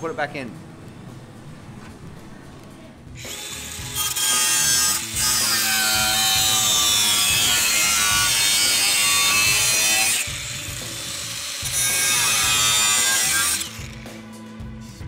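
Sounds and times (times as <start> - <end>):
angle grinder cutting metal: 3.2 - 14.2.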